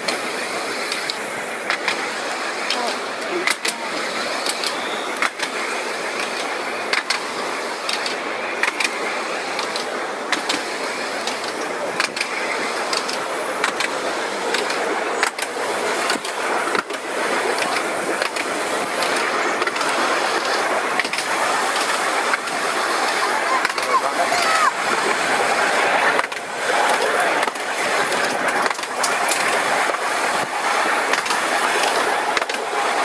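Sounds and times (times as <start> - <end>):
tram wheels rumbling on rails: 0.0 - 33.0
sharp clicks and knocks: 6.2 - 7.3, 7.9 - 9.0, 9.6 - 15.5, 17.6 - 22.5.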